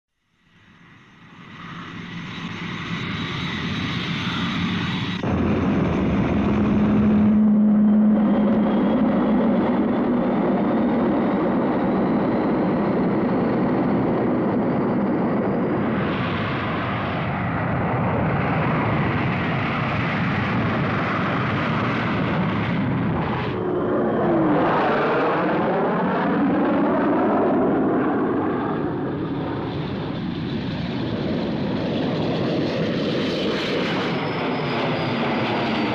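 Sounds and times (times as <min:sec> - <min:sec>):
faint rising whine: 0:00.3 - 0:17.3
jet engines running: 0:00.4 - 0:35.9
jet passing overhead: 0:00.5 - 0:35.9.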